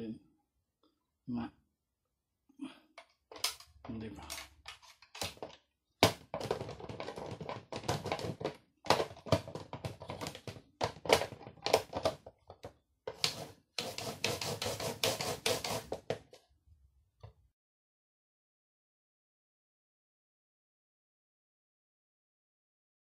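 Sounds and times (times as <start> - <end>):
fruit scraping on grater blade: 13.2 - 16.0.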